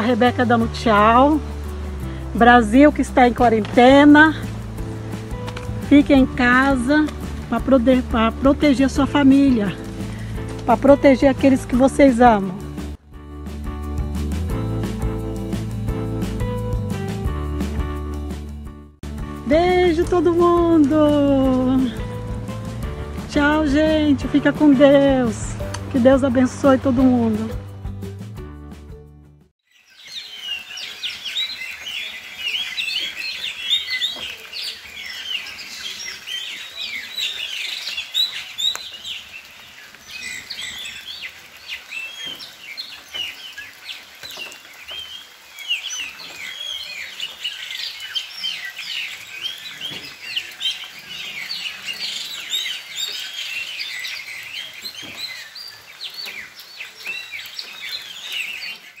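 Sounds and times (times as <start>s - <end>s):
birds chirping in chorus: 0.0s - 12.7s, 29.7s - 59.0s.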